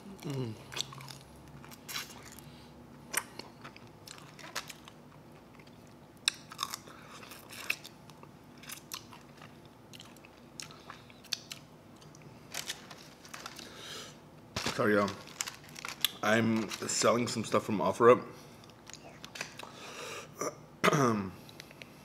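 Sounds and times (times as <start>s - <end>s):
person chewing chicken wings: 0.0s - 2.5s, 3.1s - 12.3s.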